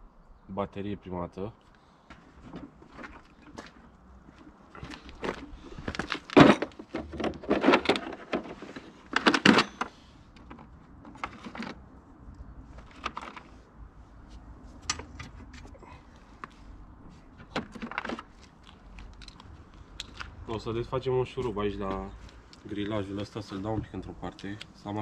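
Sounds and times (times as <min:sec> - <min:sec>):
metal tools clinking and rattling: 0:06.3 - 0:09.9.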